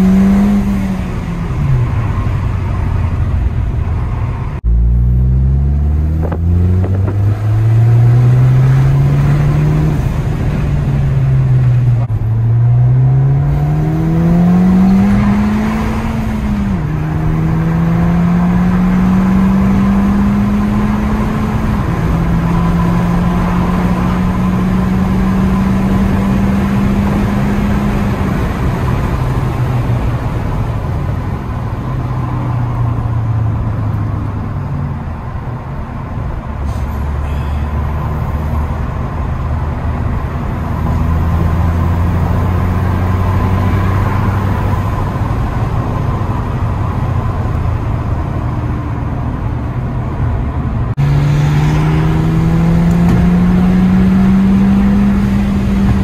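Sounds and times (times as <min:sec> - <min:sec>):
car engine accelerating: 0:00.0 - 0:35.7, 0:36.6 - 0:56.0
road and tyre noise: 0:00.0 - 0:56.0.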